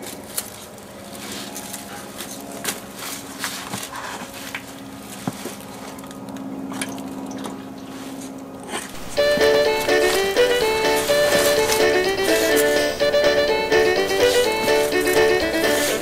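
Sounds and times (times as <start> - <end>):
rummaging through dry leaves: 0.0 - 5.7, 8.9 - 13.0, 13.8 - 16.0.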